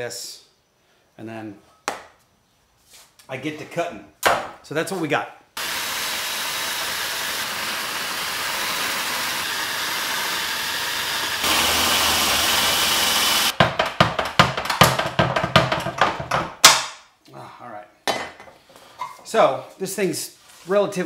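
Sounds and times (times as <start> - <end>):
cordless drill whirring: 5.6 - 13.5
high cutter whine: 5.6 - 13.5
metal clanks and knocks: 13.6 - 16.6.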